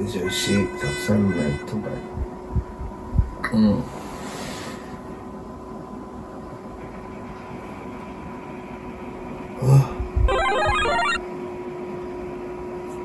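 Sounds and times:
electronic alarm ringtone: 10.3s - 11.2s.

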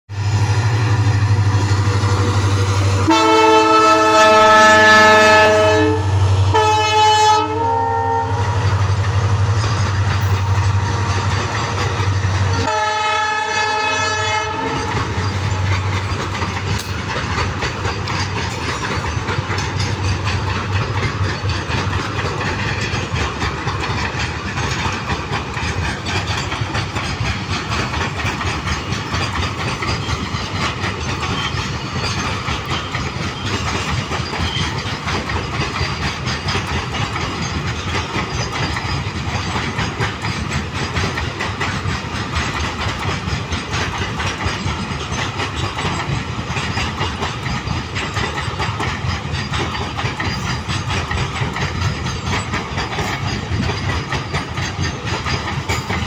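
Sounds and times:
freight train rumbling on rails: 0.1s - 56.0s
train horn blasts: 3.0s - 8.6s, 12.5s - 14.9s.

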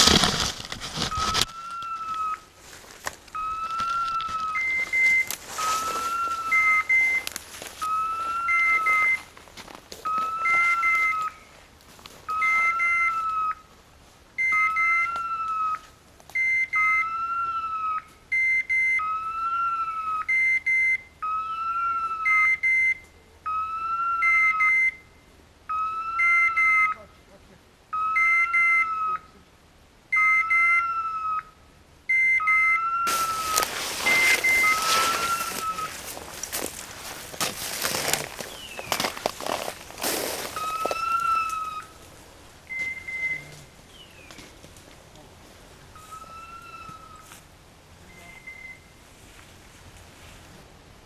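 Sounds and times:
loud rustling: 0.0s - 1.5s, 33.1s - 41.0s
electronic beeper collar signal: 4.6s - 9.2s, 32.1s - 36.0s, 42.7s - 43.6s.

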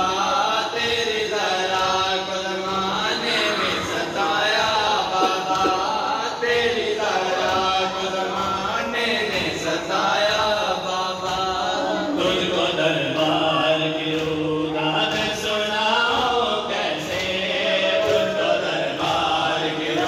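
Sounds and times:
men chanting together: 0.0s - 20.0s
hand slaps on chests: 5.0s - 6.2s, 13.1s - 19.3s.

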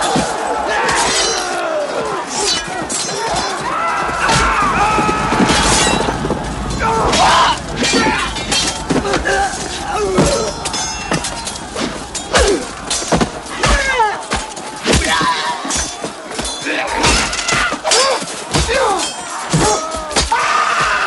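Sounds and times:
swords clashing: 0.0s - 4.6s, 6.8s - 20.9s
men yelling: 0.0s - 21.0s
heavy thuds: 3.6s - 16.6s.

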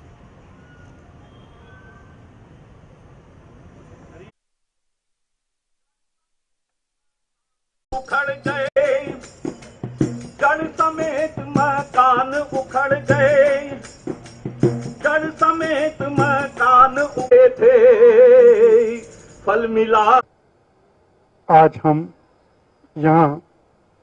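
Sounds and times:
light quick percussion: 8.8s - 17.3s.

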